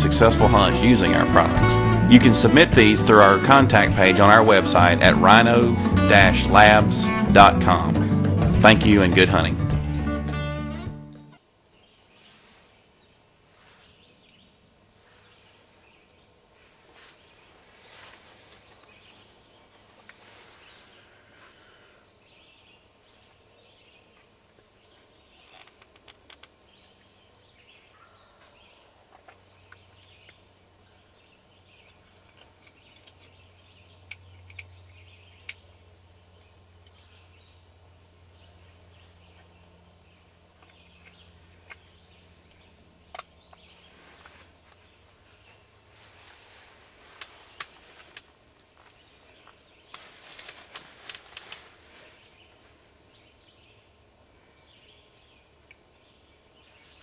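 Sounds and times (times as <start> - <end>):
ticks and rustles in leaf litter: 12.1 - 21.9, 43.6 - 53.8, 56.6 - 57.0.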